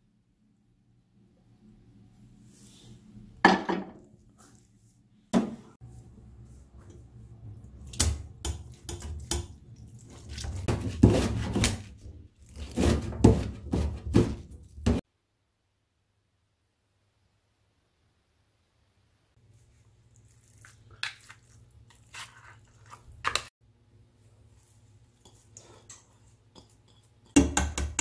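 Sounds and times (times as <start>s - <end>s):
knife chopping on cutting board: 10.3s - 12.0s, 12.6s - 15.0s, 27.3s - 28.0s.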